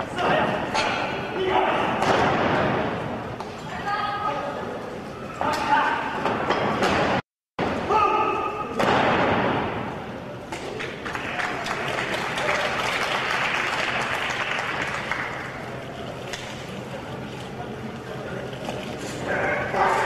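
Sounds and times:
crowd applauding and cheering: 10.8s - 16.0s.

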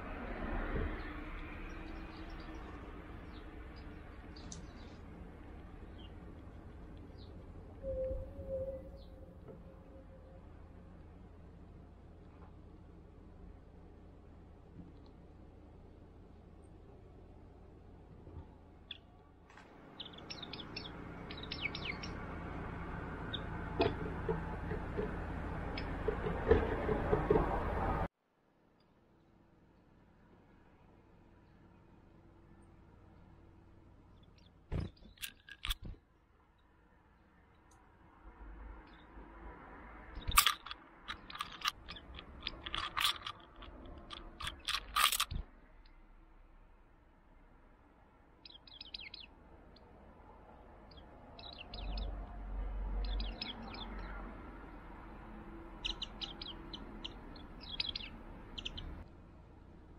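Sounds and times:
bird high chirps: 19.9s - 22.2s, 48.4s - 49.3s, 50.9s - 52.2s, 53.0s - 54.2s, 55.7s - 59.0s.

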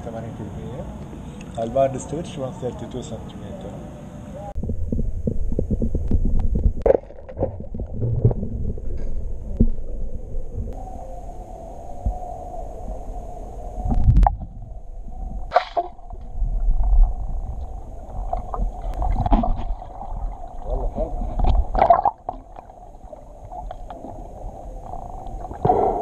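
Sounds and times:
underwater rumble and gurgling: 4.6s - 26.0s.

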